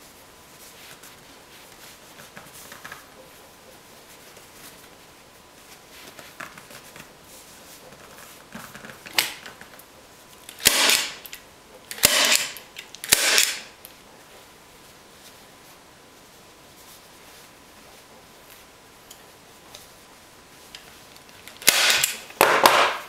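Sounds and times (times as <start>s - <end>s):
staple gun snaps: 10.5s - 11.3s, 11.9s - 13.7s, 21.5s - 23.0s.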